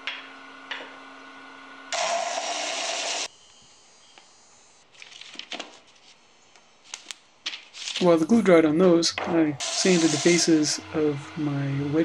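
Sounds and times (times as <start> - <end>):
disc sander motor hum: 0.4 - 4.8, 9.6 - 12.0
wood sanding hiss: 9.6 - 11.9.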